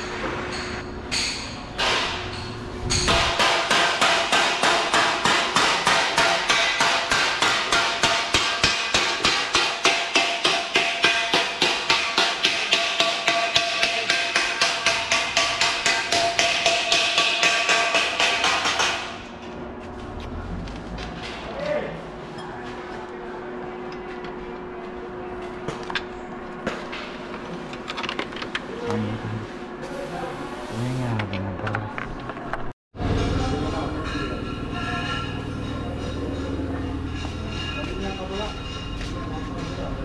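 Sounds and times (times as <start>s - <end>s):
hammering on metal: 0.0s - 19.3s.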